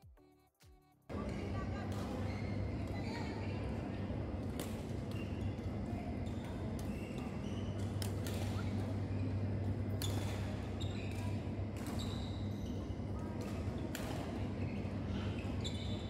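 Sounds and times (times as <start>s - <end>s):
low hall hum: 1.1s - 16.0s
shoes squeaking on court: 5.0s - 16.0s
racket hitting shuttlecock: 7.8s - 8.6s, 10.0s - 11.2s, 11.8s - 12.1s, 13.4s - 14.3s.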